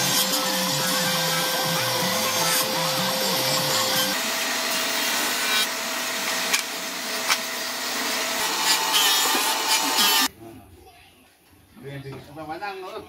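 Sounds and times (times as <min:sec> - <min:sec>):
power tool motor whining: 0:00.0 - 0:10.3.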